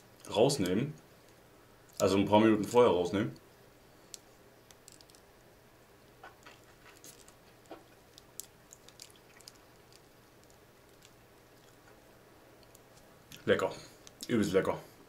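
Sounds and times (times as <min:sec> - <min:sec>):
person chewing with crunches: 0:06.2 - 0:12.0.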